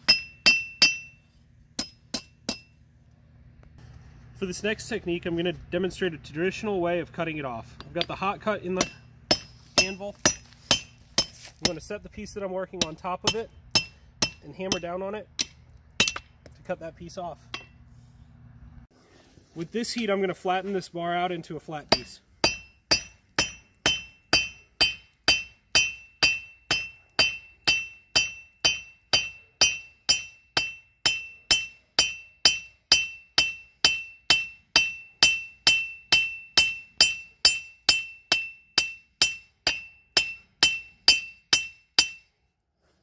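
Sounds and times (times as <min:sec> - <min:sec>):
hammer striking steel on anvil: 0:00.0 - 0:02.8, 0:07.8 - 0:12.0, 0:12.7 - 0:16.4, 0:17.5 - 0:17.8, 0:21.9 - 0:42.4.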